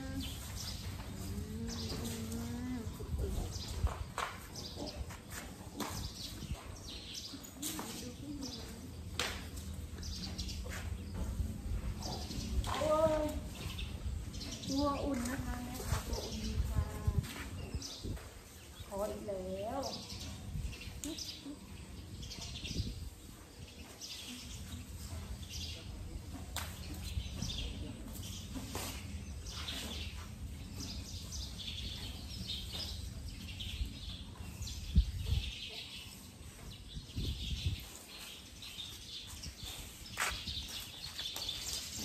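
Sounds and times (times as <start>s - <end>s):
small birds chirping: 0.0s - 42.0s.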